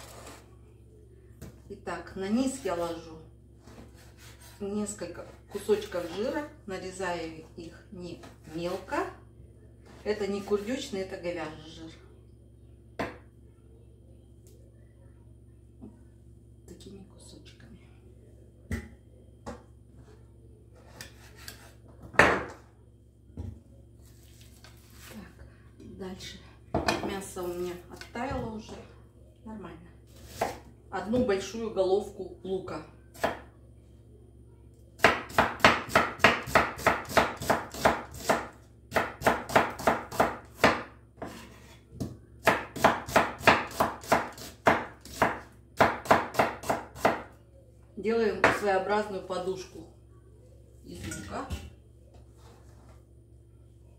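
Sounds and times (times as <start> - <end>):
knife chopping on wooden board: 42.4 - 47.2.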